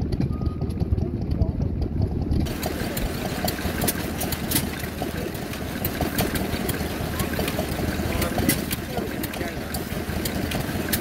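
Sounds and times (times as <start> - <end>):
sharp engine ticks: 0.0 - 11.0
stationary engine running: 0.0 - 11.0.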